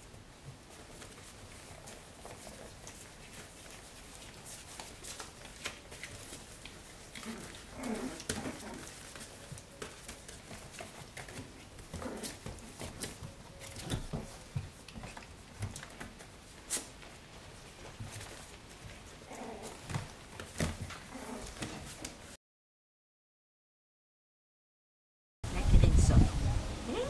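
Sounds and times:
paws scratching on paper: 0:00.0 - 0:22.4
puppy vocal sounds: 0:06.2 - 0:13.2, 0:18.7 - 0:22.3.

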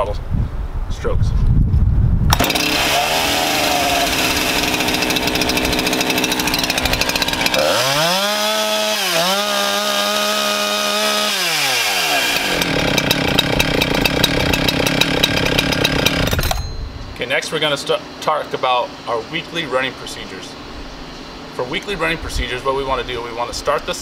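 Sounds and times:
chainsaw engine revving: 0:02.3 - 0:16.5.

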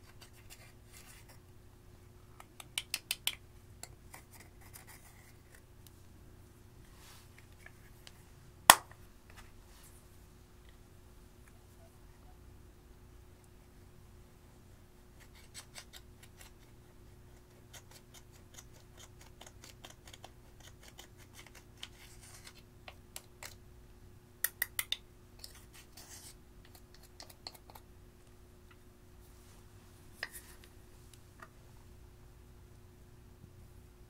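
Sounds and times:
faint scratching of eyeshadow: 0:00.0 - 0:01.4, 0:04.1 - 0:05.6, 0:15.2 - 0:22.7, 0:25.4 - 0:27.8, 0:30.2 - 0:30.7.

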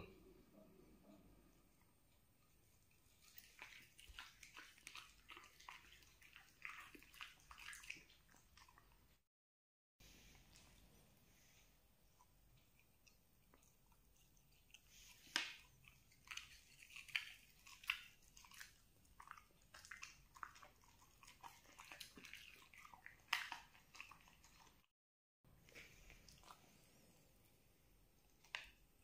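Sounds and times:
dog chewing and crunching: 0:02.6 - 0:09.1, 0:12.5 - 0:24.9.

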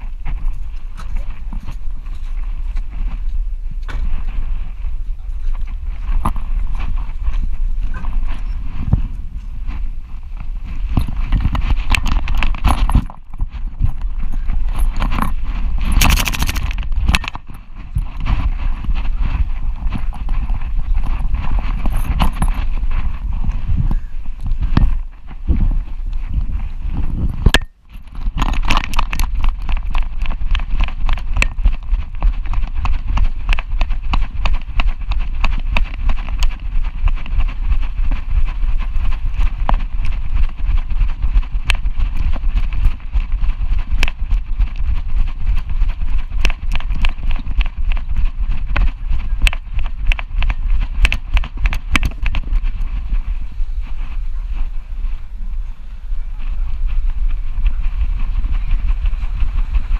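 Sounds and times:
wind on microphone: 0:00.0 - 0:59.9
camera knocking: 0:15.0 - 0:18.1.

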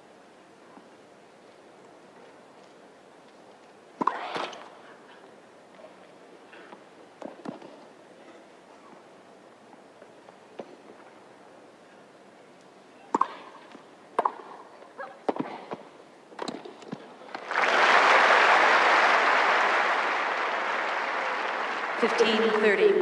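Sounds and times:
tennis ball bouncing: 0:13.1 - 0:13.5, 0:14.2 - 0:14.6
crowd applause: 0:17.3 - 0:23.0.

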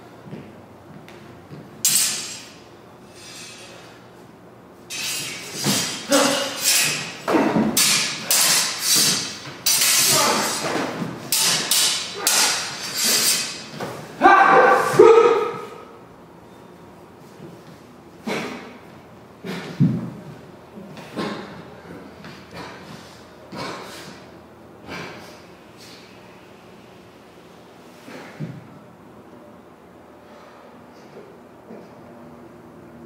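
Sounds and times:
sword blades clashing and scraping: 0:01.8 - 0:03.9, 0:04.9 - 0:13.9.

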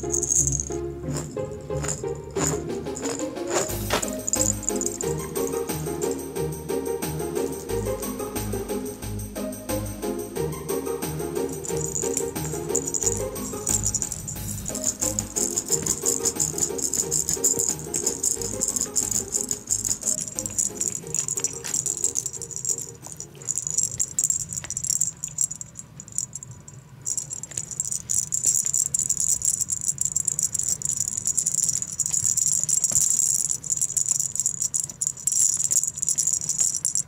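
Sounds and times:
background music: 0:00.0 - 0:22.3
shaker-like rattle: 0:00.0 - 0:37.0.

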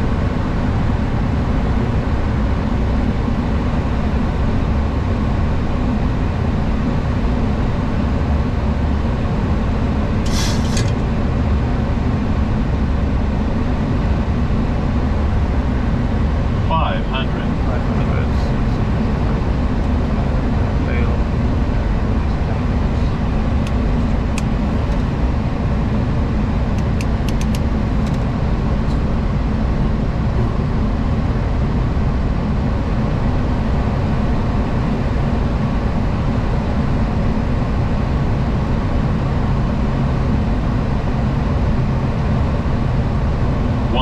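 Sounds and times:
flight deck rumble and hiss: 0:00.0 - 0:44.0.

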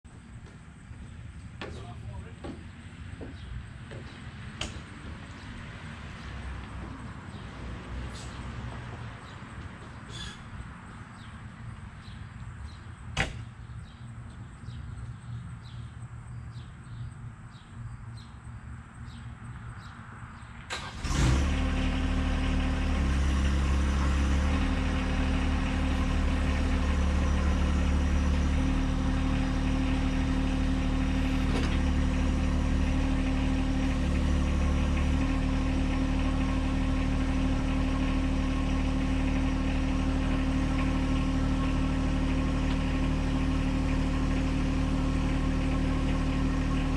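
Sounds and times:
diesel tractor engine idling: 0:00.1 - 0:19.4, 0:20.7 - 0:46.9
faint chirping: 0:10.0 - 0:13.0.

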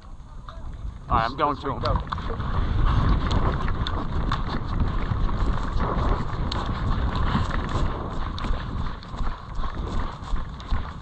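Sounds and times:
wind rumble on microphone: 0:00.0 - 0:11.0
small irregular clicks: 0:03.0 - 0:11.0.

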